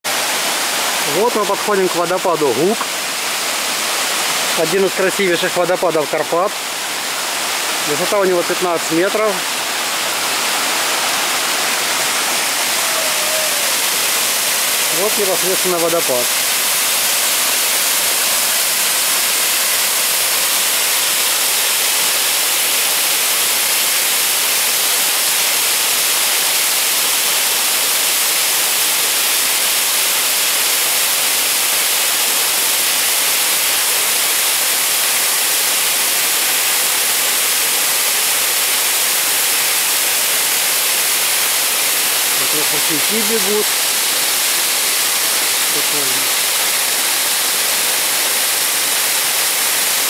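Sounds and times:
waterfall rushing: 0:00.1 - 0:50.0.

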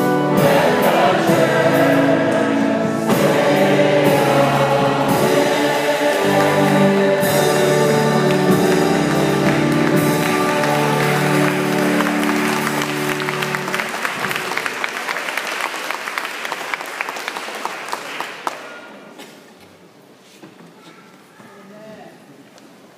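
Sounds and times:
congregation applauding: 0:03.3 - 0:19.1.

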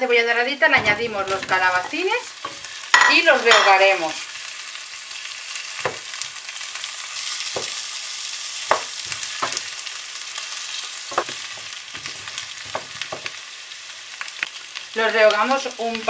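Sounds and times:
vegetables sizzling in hot oil: 0:00.0 - 0:16.0
wooden spoon knocking on pot: 0:05.8 - 0:06.1, 0:07.6 - 0:07.8, 0:08.7 - 0:09.7, 0:11.1 - 0:13.4.

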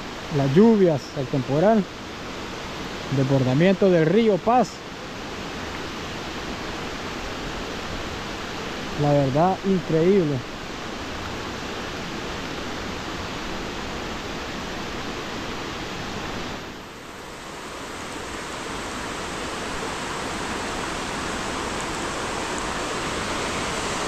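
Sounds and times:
floodwater rushing: 0:04.8 - 0:24.0.

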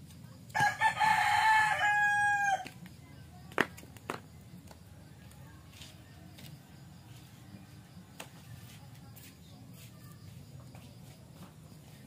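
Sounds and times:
rooster crowing: 0:00.5 - 0:02.7.

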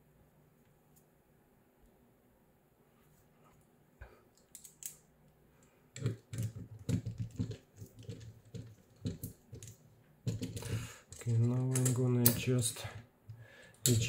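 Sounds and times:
plastic part clicking and knocking: 0:06.0 - 0:12.5.

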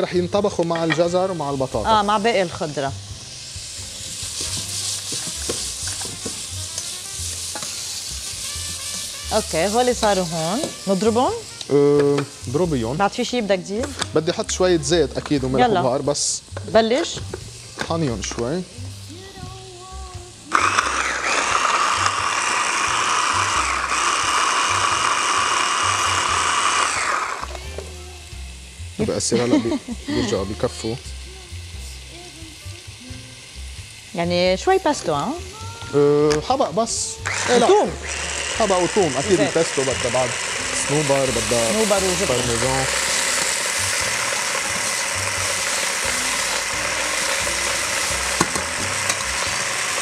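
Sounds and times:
pears sizzling in a saucepan: 0:00.0 - 0:50.0
hand blender motor whine: 0:20.5 - 0:28.0, 0:36.8 - 0:50.0.

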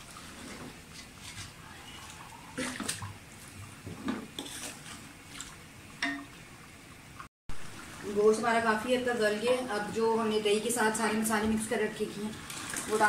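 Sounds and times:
wet sloshing in pot: 0:00.0 - 0:06.4, 0:12.4 - 0:13.0.

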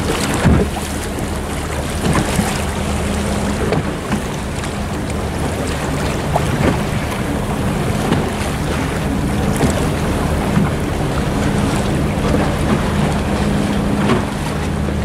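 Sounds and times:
low motor hum: 0:00.0 - 0:15.0
water lapping and splashing: 0:00.0 - 0:15.0.

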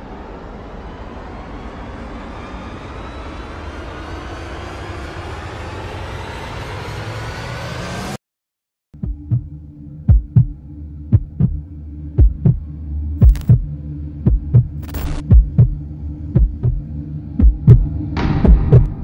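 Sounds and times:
heartbeat thumps: 0:09.0 - 0:19.0
steady low drone: 0:09.0 - 0:19.0.

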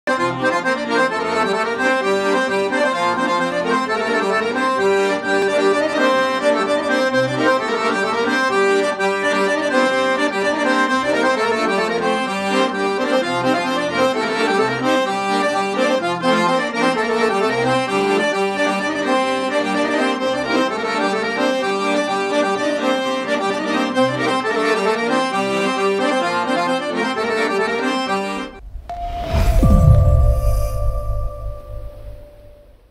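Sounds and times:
solo accordion melody: 0:00.1 - 0:28.7.

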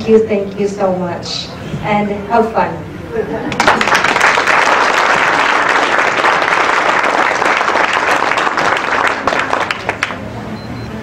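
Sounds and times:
crowd clapping: 0:03.5 - 0:10.3.

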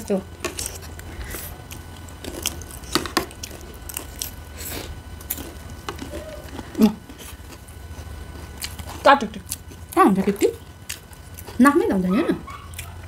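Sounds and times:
chewing: 0:00.4 - 0:13.0.

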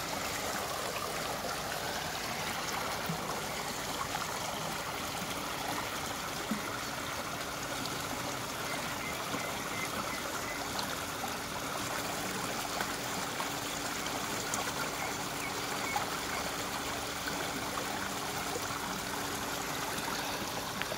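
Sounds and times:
floodwater rushing and trickling: 0:00.0 - 0:20.9.

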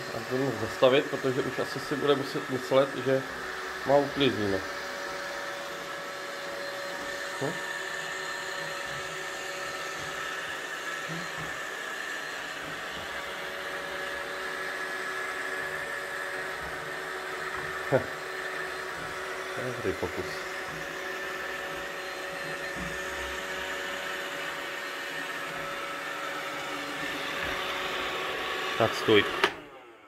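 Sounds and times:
robot vacuum motors whirring: 0:00.0 - 0:30.0.

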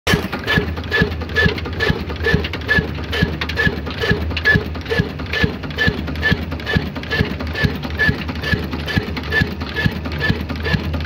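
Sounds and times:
diesel engine knocking: 0:00.1 - 0:11.0.

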